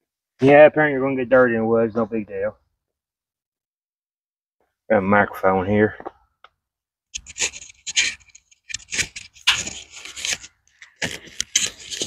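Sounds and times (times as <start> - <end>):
cloth rubbing against microphone: 7.2 - 12.0.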